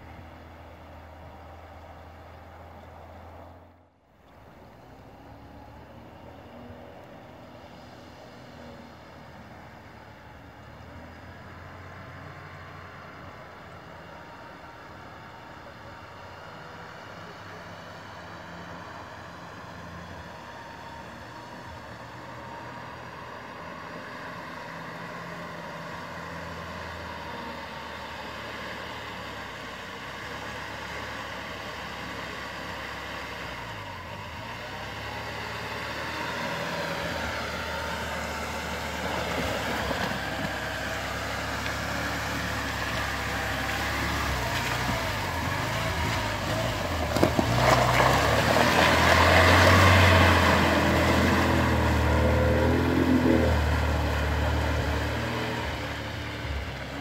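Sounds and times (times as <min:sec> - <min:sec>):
suv engine running: 0:00.0 - 0:57.0
tyres splashing through water and mud: 0:29.6 - 0:57.0.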